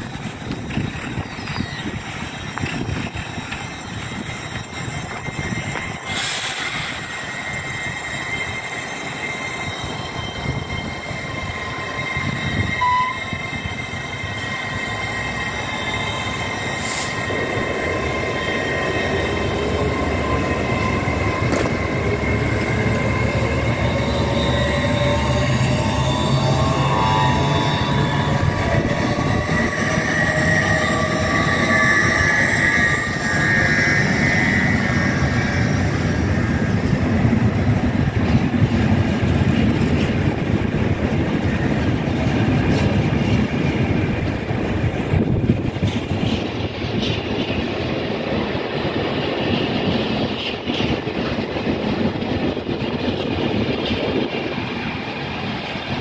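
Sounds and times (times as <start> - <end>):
high wheel squeal: 0.0 - 40.4
freight train wheels rumbling on rail: 0.0 - 56.0.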